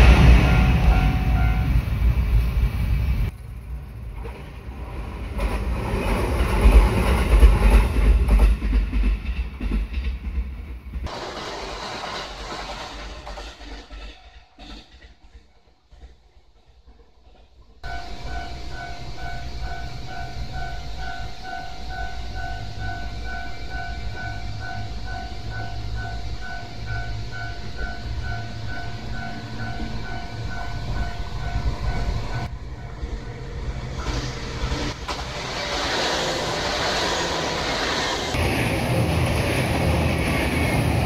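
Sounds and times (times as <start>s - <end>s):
diesel train passing: 0.0s - 41.0s
level crossing bell ringing: 17.9s - 32.5s.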